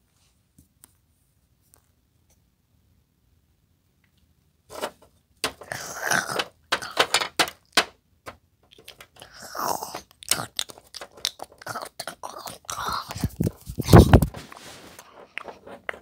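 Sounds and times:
chewing and crunching: 8.7s - 16.0s.

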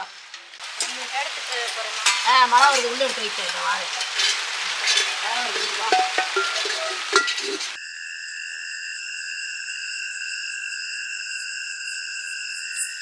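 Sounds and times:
light sizzle: 0.0s - 7.8s
insect chorus: 0.0s - 13.0s
utensil clinking against pan: 0.7s - 7.8s.

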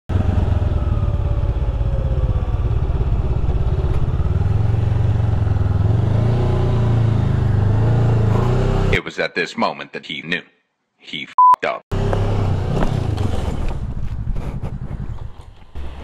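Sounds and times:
motorcycle engine pulsing: 0.1s - 8.9s, 11.9s - 16.0s.

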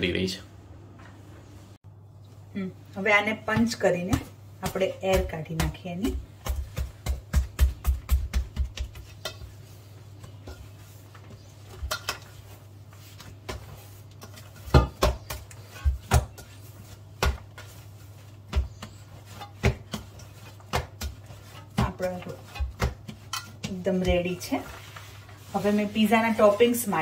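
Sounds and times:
dough punched soft thumps: 3.2s - 9.4s, 13.2s - 24.6s.

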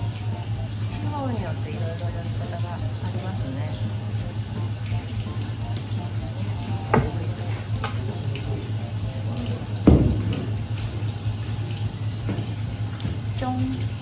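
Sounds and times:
low steady hum: 0.0s - 14.0s
water running from hose nozzle: 0.0s - 14.0s
knocks on cutting board: 6.9s - 7.2s, 9.8s - 10.5s.

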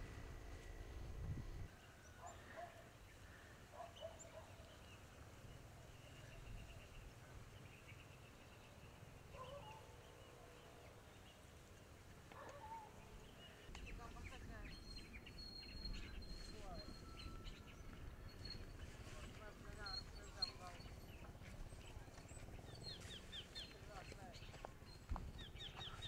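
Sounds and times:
faint high chirping: 12.4s - 26.0s.

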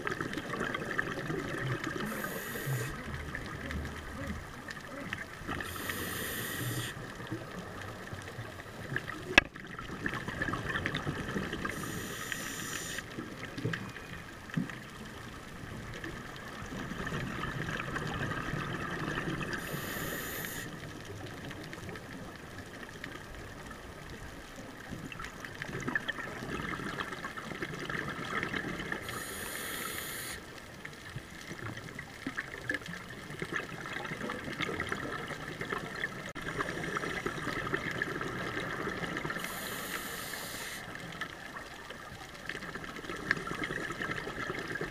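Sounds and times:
hissing regulator inhales: 2.0s - 3.0s, 5.6s - 7.0s, 11.7s - 13.0s, 19.6s - 20.8s, 29.0s - 30.4s, 39.4s - 40.9s.

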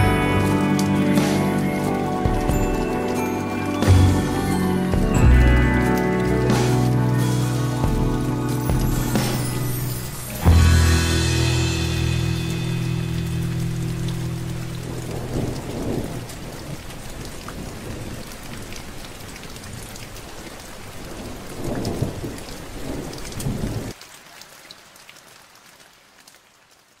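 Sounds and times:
steady rain falling: 0.0s - 27.0s
thunder rolling: 6.5s - 18.2s.

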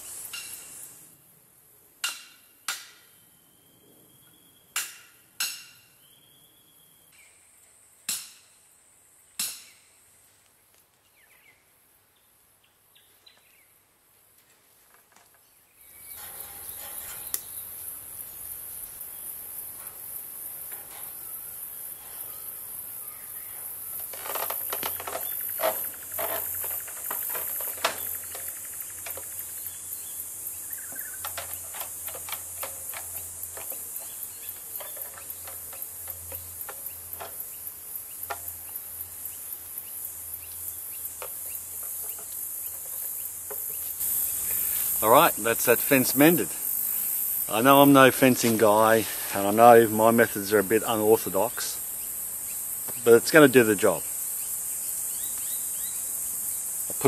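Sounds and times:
high insect buzz: 0.0s - 1.2s, 15.8s - 57.0s
metal clanks of picket driving: 16.0s - 17.8s, 23.5s - 29.6s, 30.9s - 37.6s.

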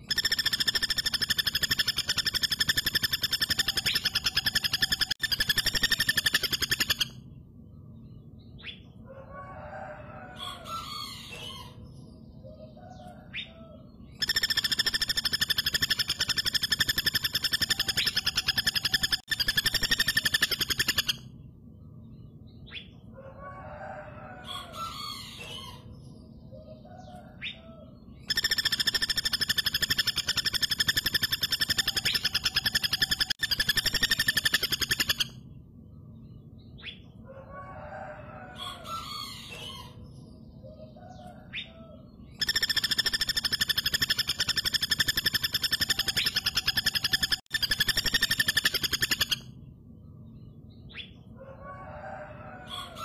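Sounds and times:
woodpecker rattling trills: 0.0s - 7.2s, 14.2s - 21.3s, 28.2s - 35.4s, 42.3s - 49.5s.

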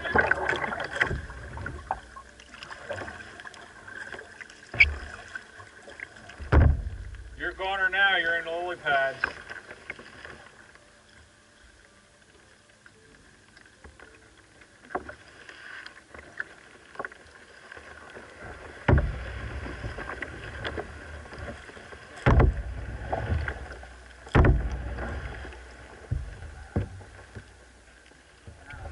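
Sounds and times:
quiet water sounds: 0.0s - 28.9s
water sloshing: 0.0s - 28.9s
knocks on plastic kayak hull: 18.8s - 19.2s, 22.2s - 22.6s, 24.3s - 24.8s.

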